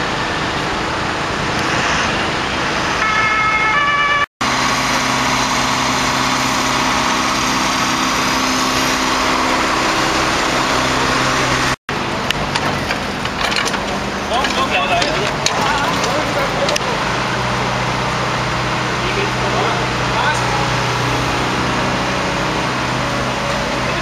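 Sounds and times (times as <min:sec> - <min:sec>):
two-tone emergency siren: 0:03.0 - 0:11.7
diesel engine idling: 0:04.4 - 0:24.0
clicks and clatter: 0:12.2 - 0:16.9.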